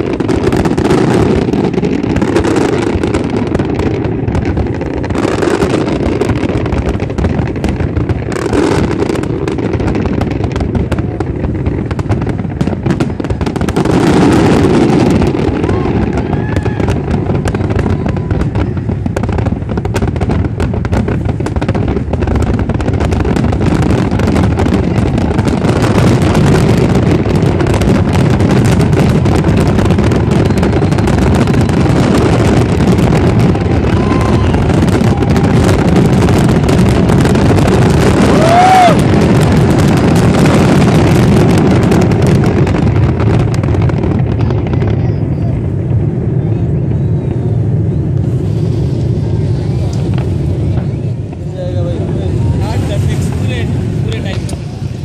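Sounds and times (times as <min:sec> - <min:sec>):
fireworks booming and crackling: 0:00.0 - 0:55.0
firework whistle: 0:12.9 - 0:19.5, 0:23.4 - 0:42.3, 0:46.3 - 0:51.4.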